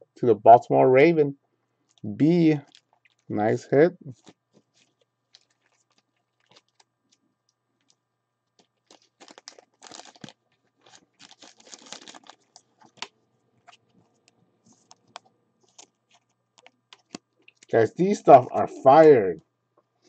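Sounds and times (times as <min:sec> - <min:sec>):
trading cards clicking and crinkling: 0:04.1 - 0:07.2, 0:07.8 - 0:18.4.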